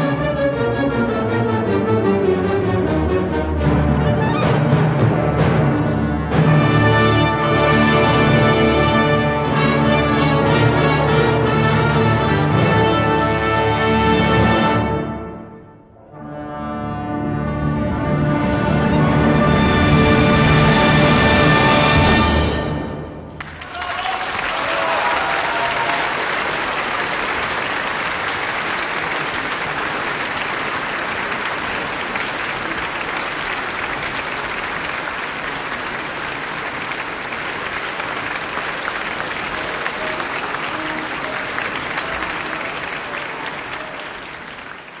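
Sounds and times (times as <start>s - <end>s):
audience applauding: 23.3s - 45.0s.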